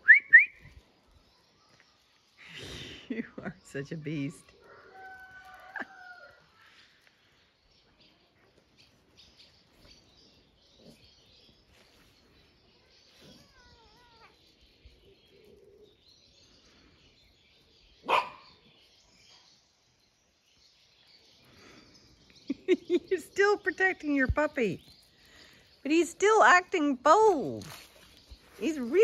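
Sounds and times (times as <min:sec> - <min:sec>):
cat yowling: 0:13.2 - 0:14.4.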